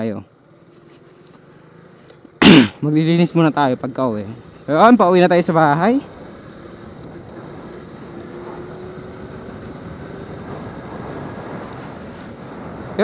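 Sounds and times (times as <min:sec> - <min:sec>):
wind and road noise: 0:00.0 - 0:13.0
motorcycle engine running: 0:02.9 - 0:11.8.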